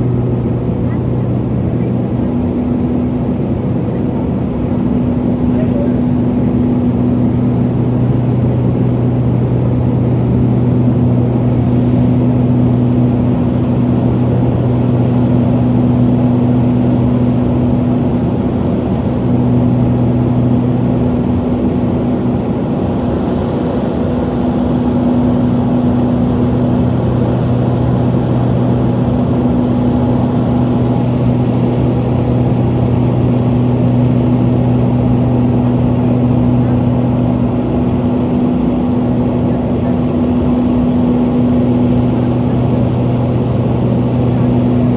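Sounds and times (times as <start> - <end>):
turboprop engines droning: 0.0 - 44.9.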